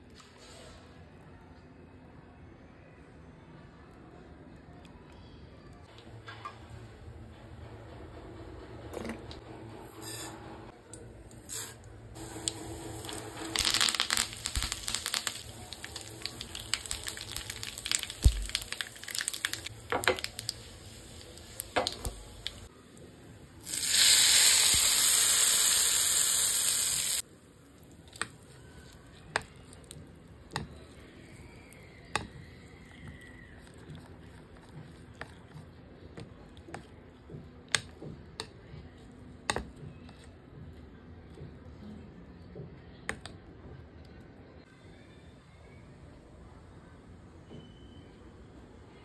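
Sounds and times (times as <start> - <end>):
loud hissing sizzle: 11.5 - 22.7, 23.6 - 27.2
mustard seeds popping in oil: 12.4 - 22.7.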